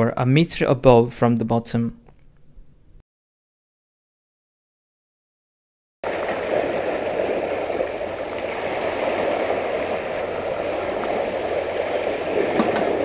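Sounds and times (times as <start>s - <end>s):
waves washing over rocks: 6.0s - 13.0s.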